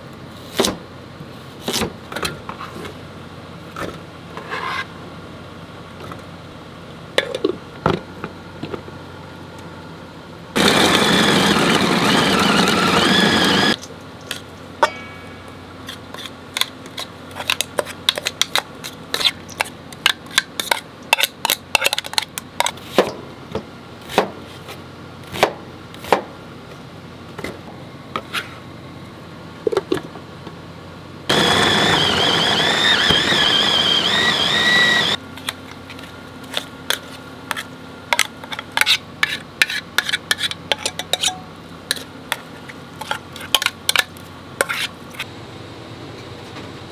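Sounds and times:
food chopper motor whining: 10.6 - 13.8, 31.3 - 35.2.

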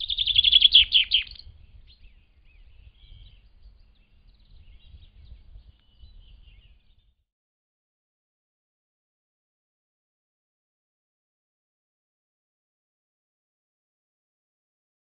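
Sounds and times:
songbird trilling and chirping: 0.0 - 7.2.

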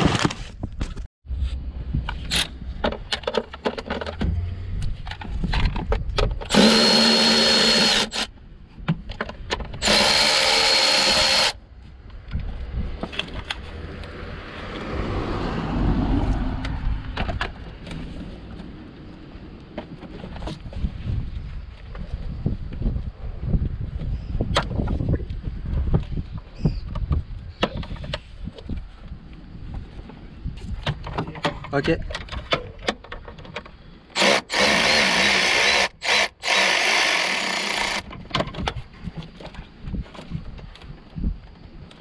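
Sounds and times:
cordless power tool whining: 6.4 - 8.3, 9.8 - 11.6, 34.2 - 38.1.

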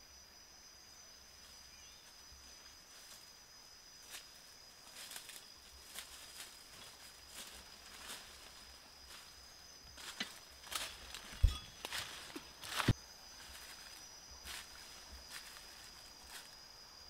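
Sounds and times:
footsteps crunching dry leaves: 4.0 - 16.6.

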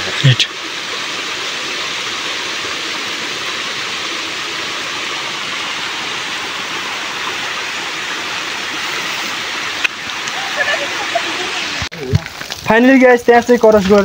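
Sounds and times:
running water: 0.0 - 14.0.

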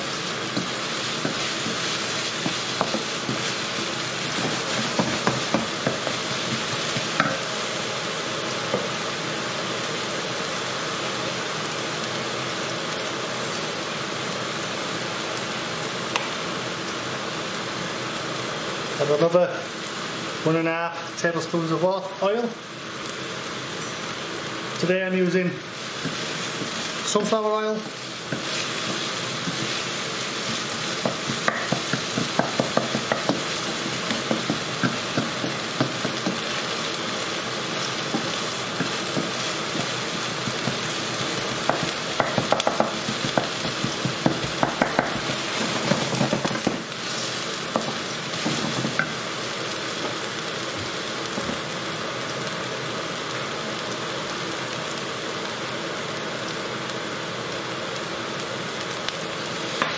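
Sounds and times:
onion sizzling in frying pan: 0.0 - 59.9
spatula scraping pan: 28.3 - 36.4.

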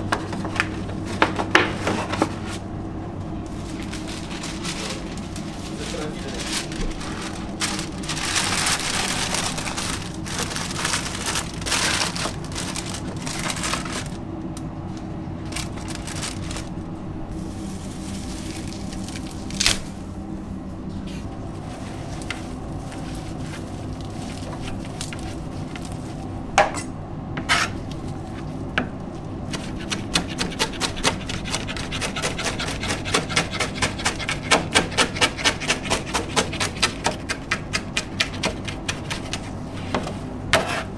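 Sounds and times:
leaves rustling: 3.4 - 14.2, 15.4 - 20.2
paper crinkling: 3.5 - 14.2, 15.4 - 16.8, 17.4 - 19.9, 21.8 - 26.2
knife chopping on cutting board: 29.5 - 40.8.

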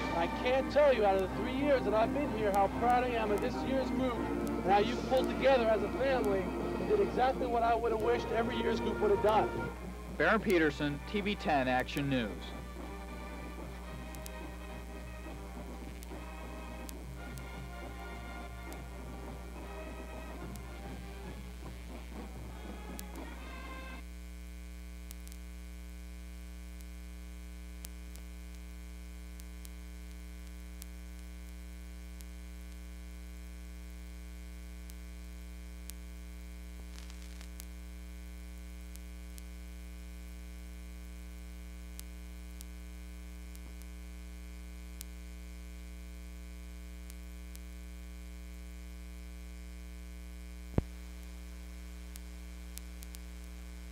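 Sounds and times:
electrical mains hum: 0.0 - 53.9
faint ticks: 10.4 - 23.4, 24.0 - 53.9.

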